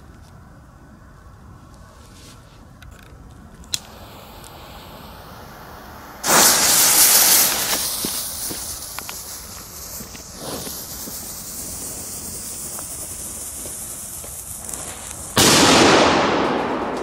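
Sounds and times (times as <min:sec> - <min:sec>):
small crackles: 0:01.6 - 0:04.7, 0:07.4 - 0:15.4
firecracker flame charge hissing: 0:03.7 - 0:17.0.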